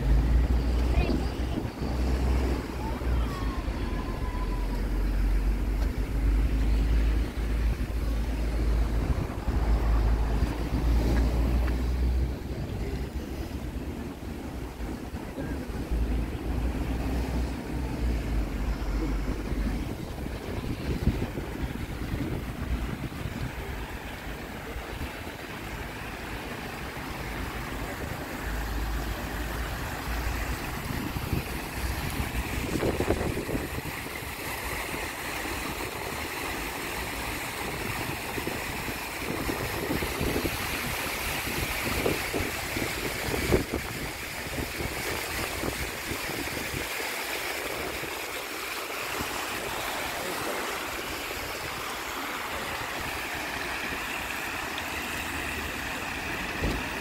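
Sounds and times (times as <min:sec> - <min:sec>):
wind rumble on microphone: 0:00.0 - 0:25.8, 0:29.4 - 0:36.5, 0:37.3 - 0:48.4
fountain water splashing: 0:00.0 - 0:57.0.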